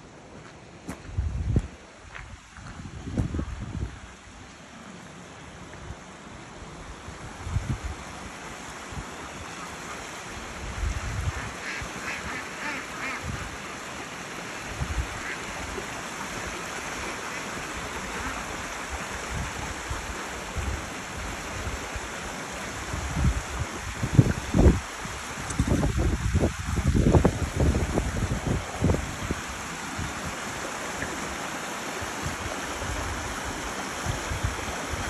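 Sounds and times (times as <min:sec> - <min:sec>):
stream rushing over rocks: 0:00.0 - 0:35.0
wind buffeting microphone: 0:00.9 - 0:04.2, 0:07.1 - 0:08.1, 0:10.5 - 0:13.6, 0:22.8 - 0:30.4
waterfowl calls: 0:11.3 - 0:13.6.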